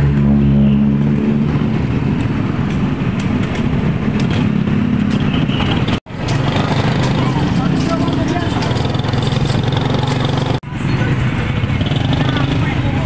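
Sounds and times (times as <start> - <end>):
vehicle engine rumble: 0.0 - 13.0.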